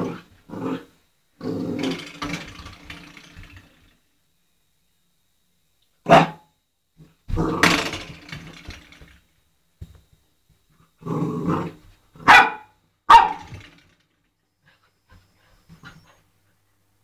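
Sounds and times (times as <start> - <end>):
puppy growling: 0.0 - 3.2, 11.0 - 11.9
puppy barking: 6.1 - 6.5, 12.2 - 13.5.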